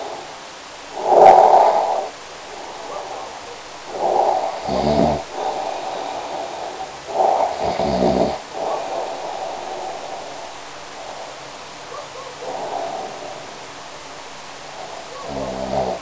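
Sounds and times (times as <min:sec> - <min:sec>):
person snoring: 0:00.9 - 0:02.9, 0:03.9 - 0:11.4, 0:12.4 - 0:13.6, 0:14.8 - 0:16.0.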